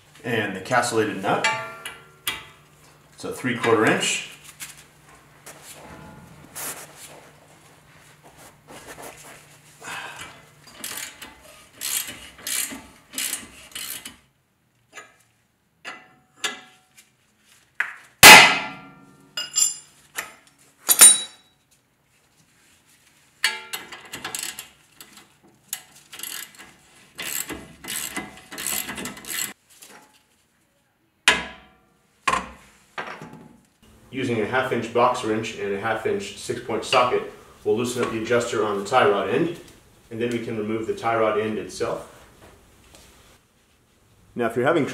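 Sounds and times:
hammer striking metal: 5.8 - 6.8
ratchet wrench clicking: 10.8 - 14.2, 26.1 - 29.6
tool clatter: 23.4 - 30.2.

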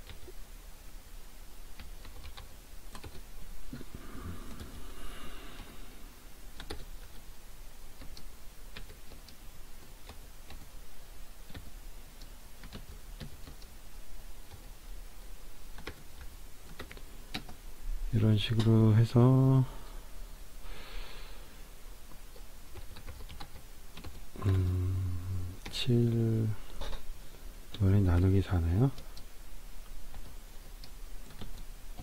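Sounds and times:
typing on computer keyboard: 1.8 - 3.2, 6.6 - 7.2, 8.0 - 10.7, 11.4 - 11.7, 12.6 - 13.7, 15.7 - 17.6, 22.7 - 24.7, 30.1 - 32.0.

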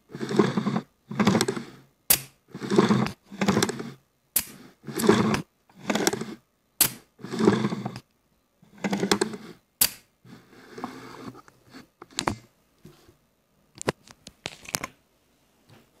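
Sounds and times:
rifle parts rubbing and scraping: 10.3 - 12.3.

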